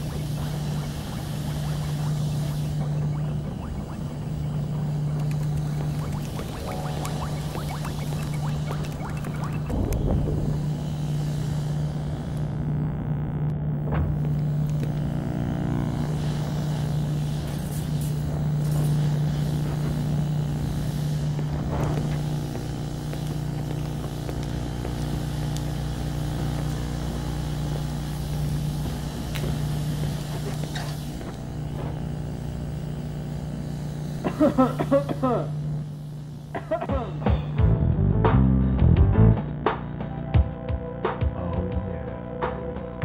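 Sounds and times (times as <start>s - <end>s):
low machine hum: 0.0s - 43.0s
faint clicks: 1.7s - 10.0s.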